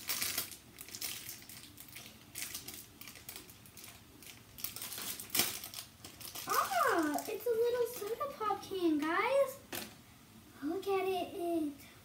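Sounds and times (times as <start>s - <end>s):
wrapper crinkling: 0.0s - 8.4s.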